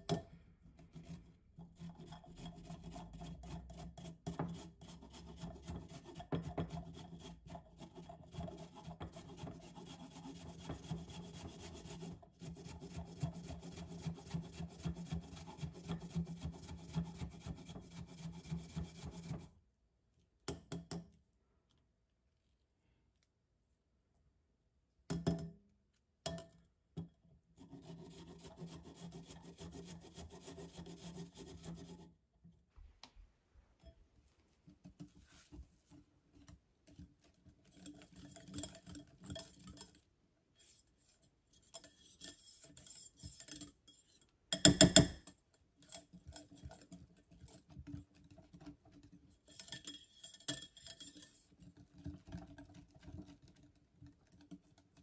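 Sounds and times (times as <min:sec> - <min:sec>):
whisk beating batter in glass bowl: 0:00.8 - 0:19.5, 0:36.9 - 0:45.2, 0:45.8 - 0:55.0
carrot rasped on grater: 0:00.9 - 0:19.6, 0:27.6 - 0:32.2.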